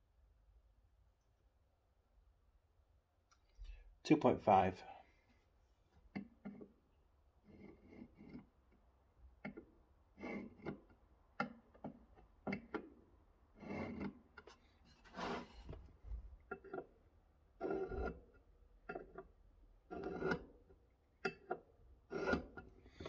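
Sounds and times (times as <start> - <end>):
scribe scratching metal: 14.9 - 15.6.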